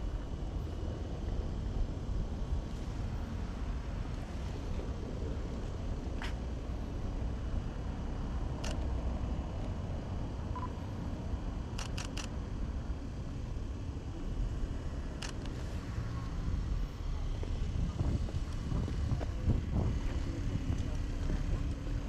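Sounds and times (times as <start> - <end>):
low street rumble: 0.0 - 22.0
camera shutter clicking: 11.8 - 12.3.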